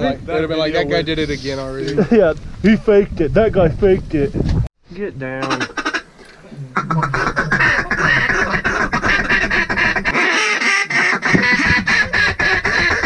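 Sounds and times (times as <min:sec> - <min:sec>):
duck call quacks: 0:05.4 - 0:06.0, 0:06.8 - 0:13.0.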